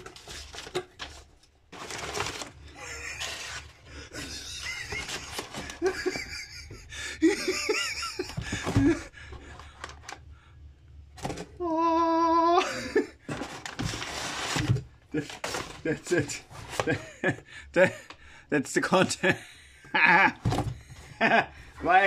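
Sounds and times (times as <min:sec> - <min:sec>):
packing paper rustling: 0:00.0 - 0:06.2, 0:13.3 - 0:17.0.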